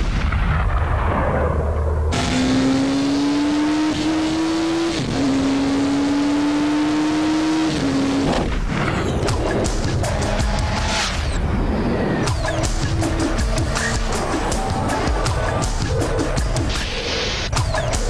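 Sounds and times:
motorcycle engine accelerating: 2.1s - 11.4s, 12.2s - 16.8s.

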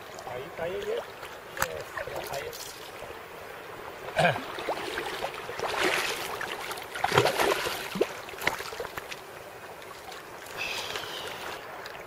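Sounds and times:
seawater sloshing and splashing: 4.4s - 12.0s.

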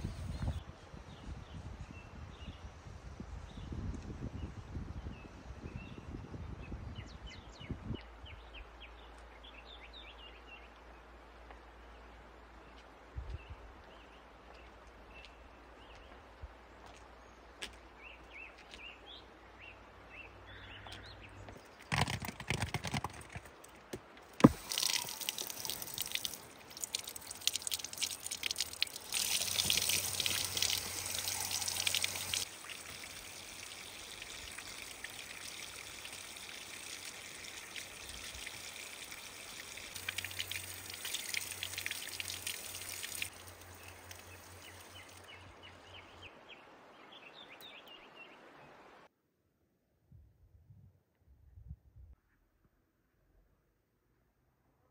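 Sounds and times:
tap water splashing on fruit: 24.4s - 43.3s.

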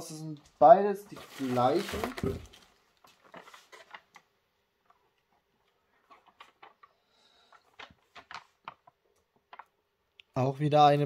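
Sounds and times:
bubble wrap and cardboard crinkling: 0.6s - 4.3s, 6.0s - 9.8s.

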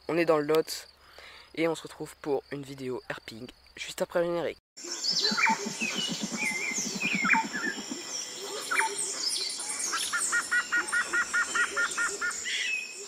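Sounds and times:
birds singing: 4.8s - 13.0s
low rapid pulsing: 4.9s - 8.4s.

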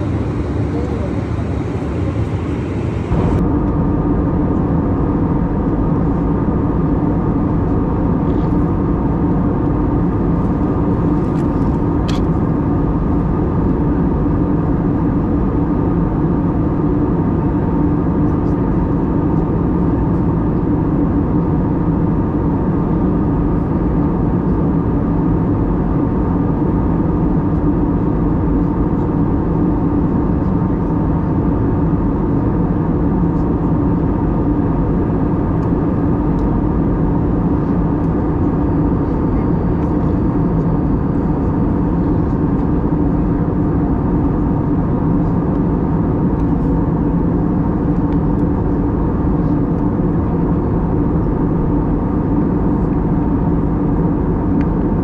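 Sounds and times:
airliner cabin engine and airflow rush: 0.0s - 55.0s
constant low hum: 0.0s - 55.0s.

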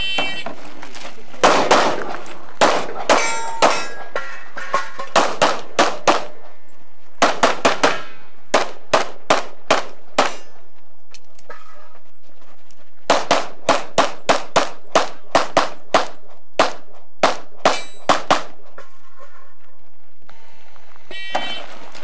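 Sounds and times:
steel targets ringing: 3.0s - 5.1s, 17.7s - 18.1s.

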